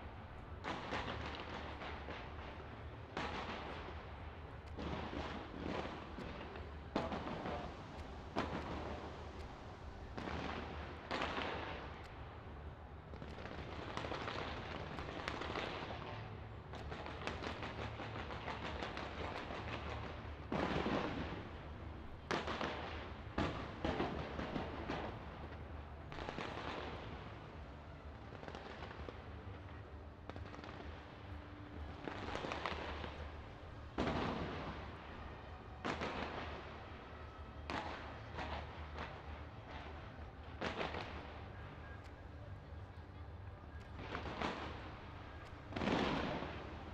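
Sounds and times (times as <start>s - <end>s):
fireworks crackling: 0.0s - 12.4s, 13.0s - 42.0s, 43.8s - 46.9s
fireworks bursting: 0.6s - 12.2s, 13.1s - 42.0s, 43.8s - 46.9s.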